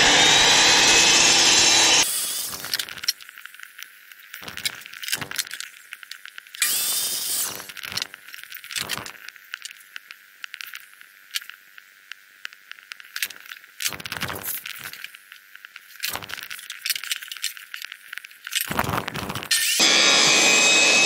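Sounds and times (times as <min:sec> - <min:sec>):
power saw cutting wood: 0:00.0 - 0:02.7, 0:19.7 - 0:21.0.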